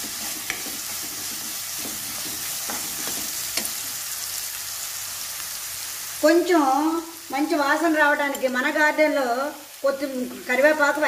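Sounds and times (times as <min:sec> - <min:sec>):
spatula scraping and knocking pan: 0:00.0 - 0:04.0
vegetables sizzling in oil: 0:00.0 - 0:11.0.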